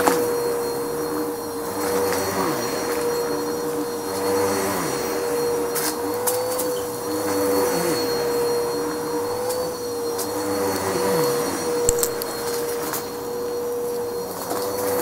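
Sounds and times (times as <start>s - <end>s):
vacuum cleaner on carpet: 0.0s - 15.0s
sharp click: 11.9s - 12.3s.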